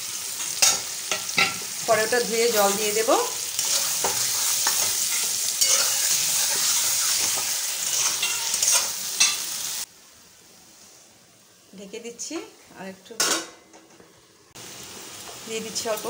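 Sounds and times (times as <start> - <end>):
vegetables sizzling in oil: 0.0 - 10.8, 14.2 - 16.0
metal spatula scraping a pan: 3.6 - 9.4.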